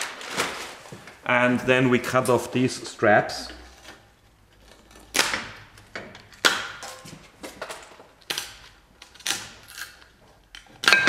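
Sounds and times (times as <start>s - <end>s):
foam wrap rustling: 0.0s - 1.2s.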